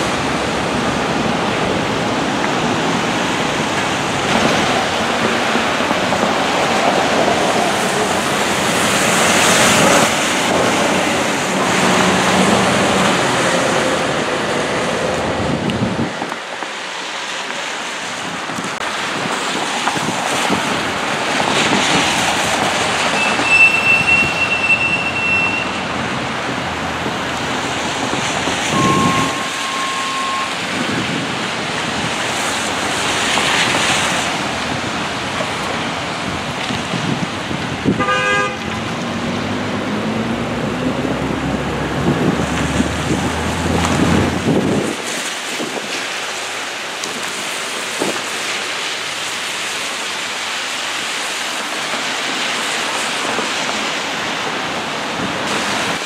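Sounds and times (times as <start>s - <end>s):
tyres hissing on wet road: 0.0s - 56.0s
brief steady tones: 23.2s - 25.8s, 28.8s - 30.6s.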